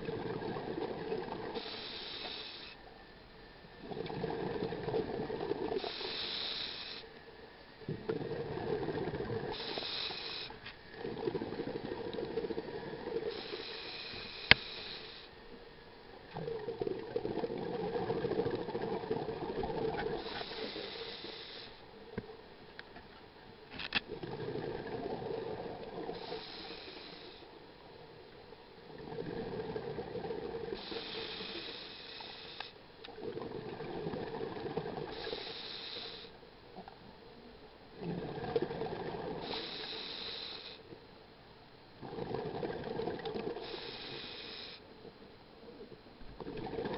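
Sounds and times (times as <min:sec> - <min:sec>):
diver inhaling through regulator: 0:01.6 - 0:02.8, 0:05.7 - 0:07.1, 0:09.5 - 0:11.8, 0:13.2 - 0:15.4, 0:20.0 - 0:21.9, 0:26.1 - 0:27.5, 0:30.7 - 0:32.8, 0:35.1 - 0:36.4, 0:39.3 - 0:40.9, 0:43.5 - 0:44.9.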